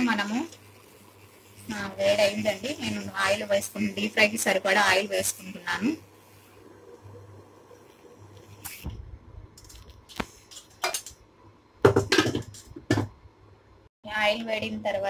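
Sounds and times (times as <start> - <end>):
kitchenware knocking on pan: 11.8 - 13.2.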